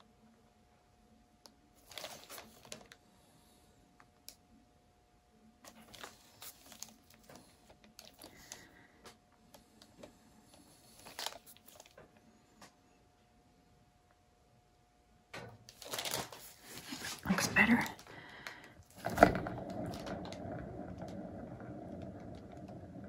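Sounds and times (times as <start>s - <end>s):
faint steady hum: 0.0s - 23.0s
gloved hands clicking and crinkling: 15.7s - 18.7s.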